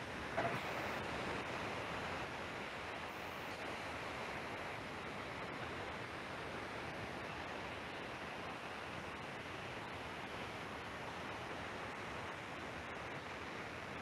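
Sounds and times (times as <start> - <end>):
steady background hiss: 0.4 - 10.4.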